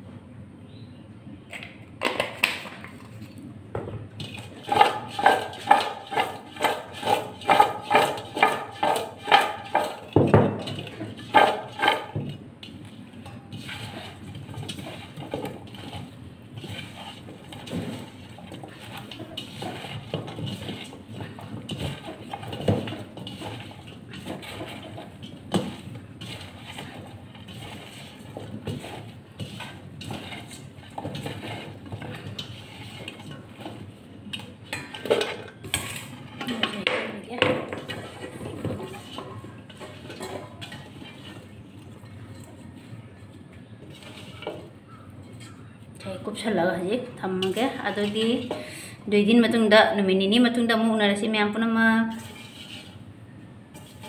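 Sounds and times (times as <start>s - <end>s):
mango slices tossed in bowl: 4.2s - 36.8s, 52.0s - 53.1s.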